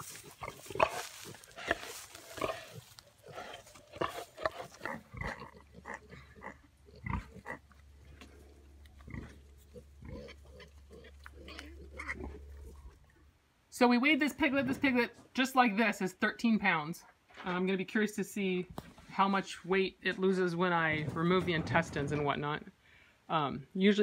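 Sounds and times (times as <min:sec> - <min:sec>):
pigs grunting: 0:00.0 - 0:13.2.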